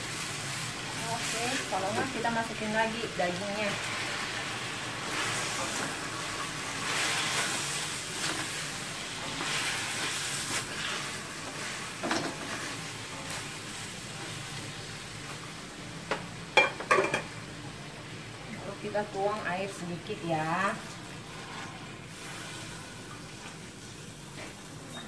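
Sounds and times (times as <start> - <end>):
meat sizzling in a wok: 0.0 - 25.0
spatula scraping a wok: 5.0 - 13.5, 21.2 - 22.8.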